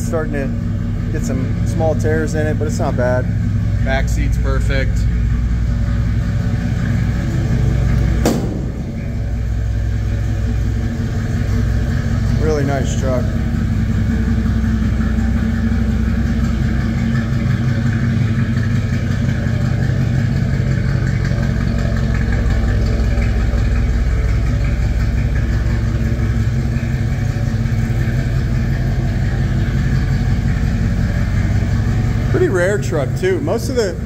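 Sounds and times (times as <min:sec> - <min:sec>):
truck engine idling: 0:00.0 - 0:34.0.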